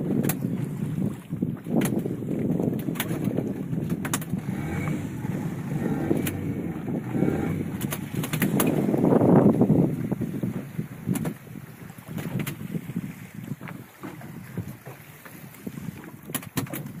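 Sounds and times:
water noise: 0.0 - 17.0
wind on microphone: 0.0 - 17.0
sharp clicks and knocks: 2.8 - 4.4, 6.0 - 6.4, 7.7 - 8.8.

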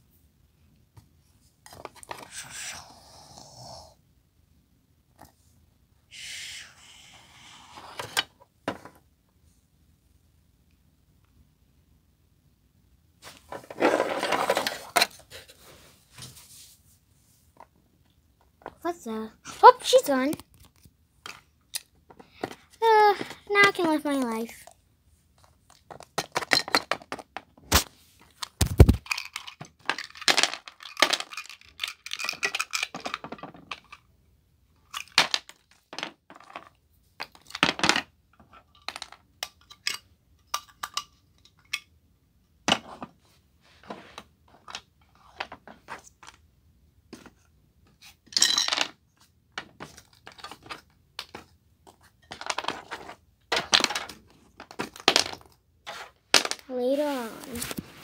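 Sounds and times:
small hard objects clattering: 13.5 - 15.0, 28.6 - 34.0, 49.6 - 56.8.

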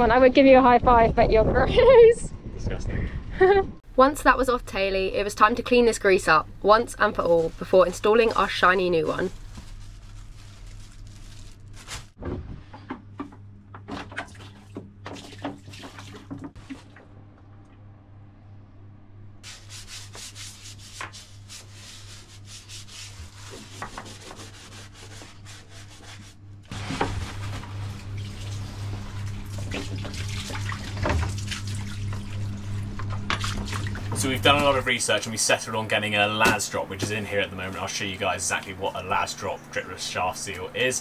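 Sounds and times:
steady low hum: 0.0 - 41.0
plastic bag rustling: 7.0 - 12.2, 26.7 - 30.0
hands scrubbing and wiping grease: 19.4 - 26.4.

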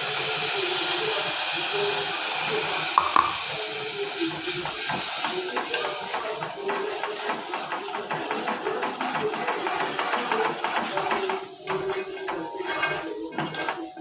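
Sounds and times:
paste sizzling in hot oil: 0.0 - 14.0
spoon stirring in a pot: 3.0 - 14.0.

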